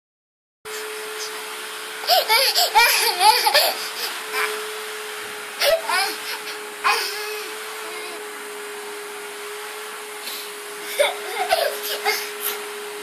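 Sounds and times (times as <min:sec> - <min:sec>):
steady hum: 0:00.7 - 0:13.0
small child squealing with laughter: 0:02.0 - 0:04.7, 0:10.9 - 0:12.6.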